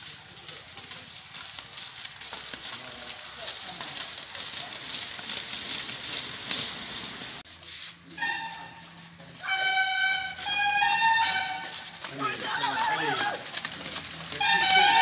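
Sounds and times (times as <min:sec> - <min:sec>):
loud held horn-like notes: 0:08.1 - 0:12.9, 0:14.3 - 0:15.0.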